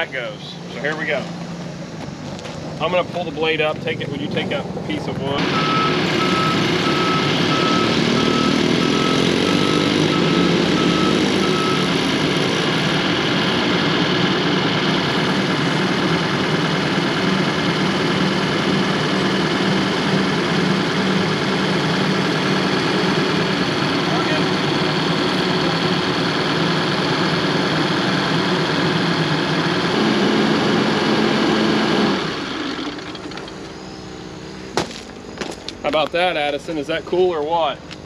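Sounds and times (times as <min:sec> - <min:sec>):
bulldozer diesel engine running: 0:00.0 - 0:38.0
reverse alarm beeping: 0:05.4 - 0:12.1, 0:33.4 - 0:36.4.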